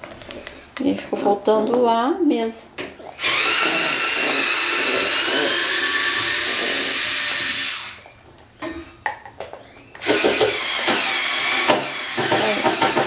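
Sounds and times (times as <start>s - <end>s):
electric drill whining: 3.1s - 8.2s, 9.5s - 13.0s.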